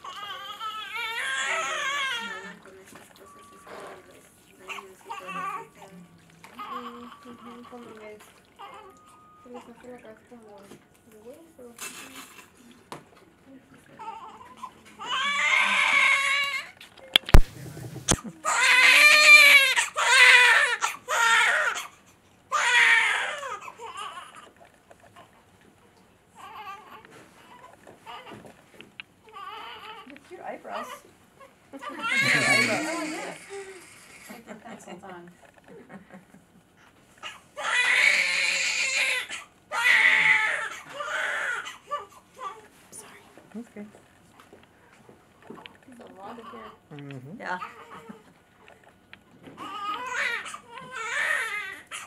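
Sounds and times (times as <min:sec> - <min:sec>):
newborn baby crying: 0:00.0 - 0:02.6, 0:04.7 - 0:05.9, 0:06.5 - 0:09.4, 0:14.0 - 0:17.4, 0:18.0 - 0:24.5, 0:26.4 - 0:28.4, 0:29.2 - 0:30.1, 0:30.7 - 0:34.4, 0:37.2 - 0:42.6, 0:47.6 - 0:48.2, 0:49.6 - 0:52.0.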